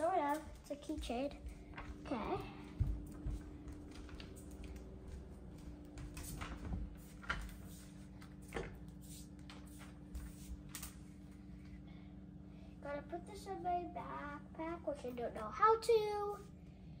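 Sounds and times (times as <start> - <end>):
footsteps on hard floor: 0.0 - 10.7
faint steady hum: 0.0 - 17.0.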